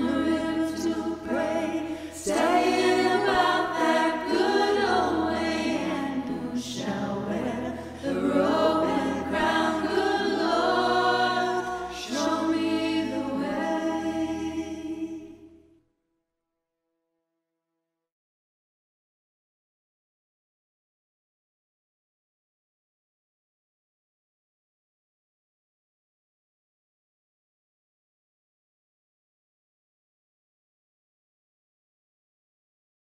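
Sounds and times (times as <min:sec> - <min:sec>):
singers in harmony: 0:00.0 - 0:15.6.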